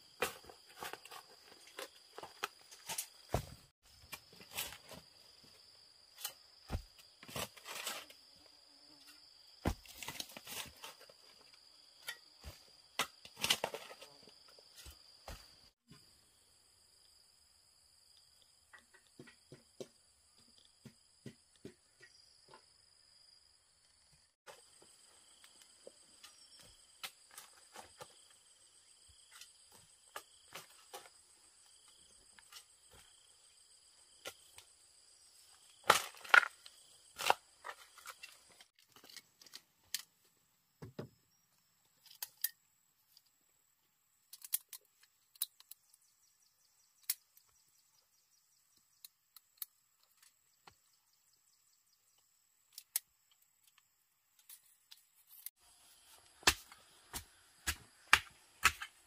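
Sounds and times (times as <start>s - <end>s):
insects buzzing: 0.0s - 21.3s.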